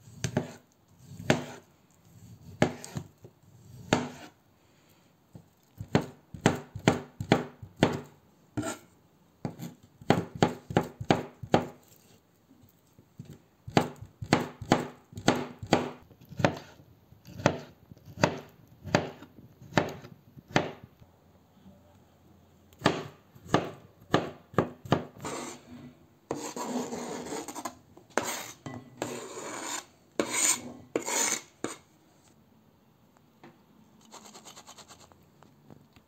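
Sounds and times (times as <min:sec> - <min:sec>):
knife chopping on cutting board: 0:00.2 - 0:01.6, 0:02.2 - 0:03.1, 0:03.7 - 0:04.3, 0:05.8 - 0:08.8, 0:09.4 - 0:11.8, 0:13.2 - 0:20.8, 0:22.8 - 0:25.6, 0:26.3 - 0:31.8
blade scraping over board: 0:25.2 - 0:31.8.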